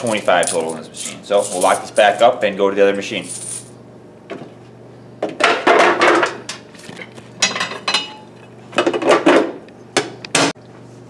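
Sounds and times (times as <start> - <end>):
vending machine parts clattering: 0.0 - 2.3.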